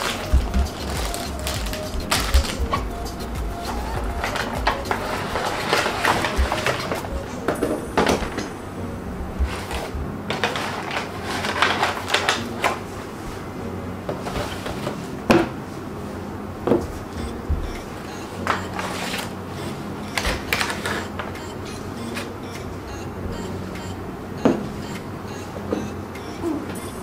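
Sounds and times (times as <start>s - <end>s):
contents rustling: 0.0s - 22.8s
background music: 0.0s - 27.0s.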